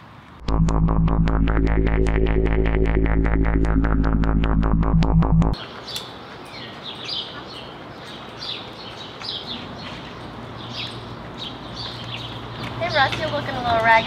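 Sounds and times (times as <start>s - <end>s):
outdoor background hiss: 5.6s - 14.0s
small birds chirping: 5.6s - 14.0s.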